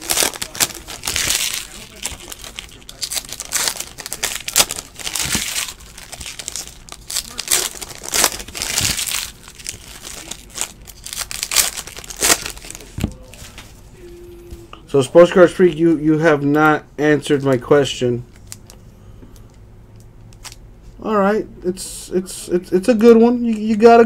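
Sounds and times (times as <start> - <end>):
foil wrappers crinkling: 0.0 - 13.7.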